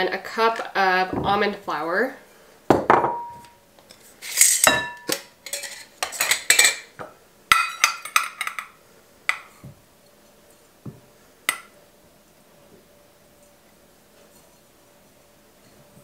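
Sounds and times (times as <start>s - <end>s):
glass and metal cup clinking: 7.5s - 8.7s.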